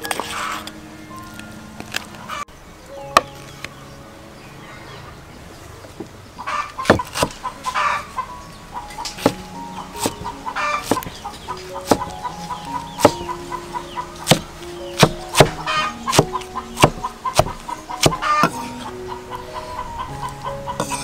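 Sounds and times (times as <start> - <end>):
soft background music: 0.0 - 21.0
cleaver knocking on wooden block: 10.0 - 11.1, 11.8 - 12.2, 13.0 - 13.3, 14.2 - 18.6.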